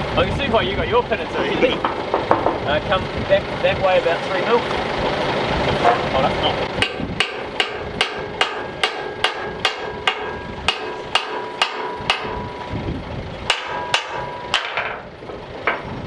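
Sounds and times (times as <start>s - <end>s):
hammer striking steel: 6.8s - 12.8s, 13.4s - 15.1s.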